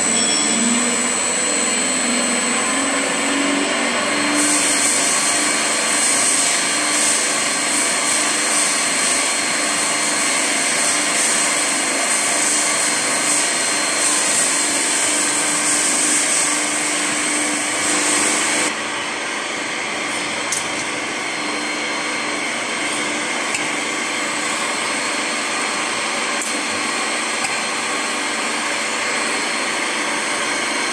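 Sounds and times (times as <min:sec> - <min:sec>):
paddle mixer running: 0:00.0 - 0:30.9
hiss of churning powder: 0:02.7 - 0:18.7.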